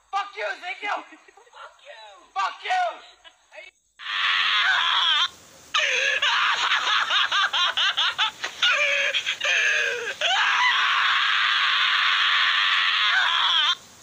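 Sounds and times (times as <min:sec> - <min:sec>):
sustained scream: 0:04.0 - 0:07.4, 0:08.6 - 0:13.8
high-pitched laughter: 0:05.8 - 0:10.3.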